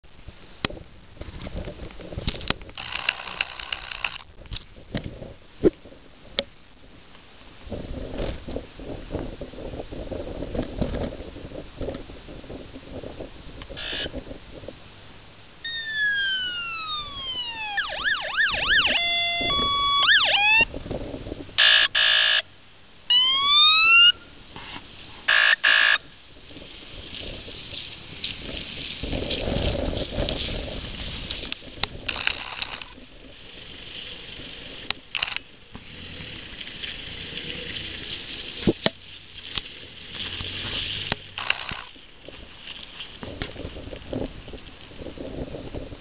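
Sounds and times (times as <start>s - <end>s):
tyres on wet tarmac: 0.0s - 45.7s
electronic siren wailing and yelping: 15.6s - 20.7s, 21.6s - 22.4s, 23.1s - 24.2s, 25.3s - 26.0s.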